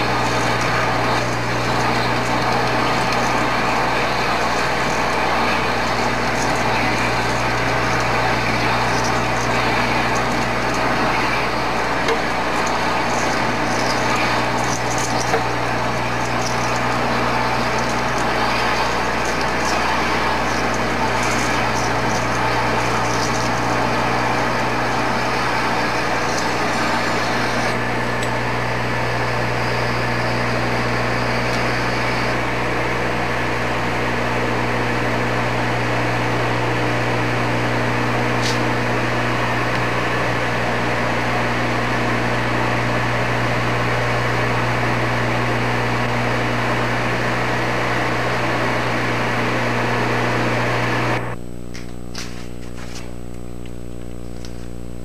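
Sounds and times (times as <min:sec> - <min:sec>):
metal cutting noise: 0:00.0 - 0:33.6
lathe motor hum: 0:00.0 - 0:51.4.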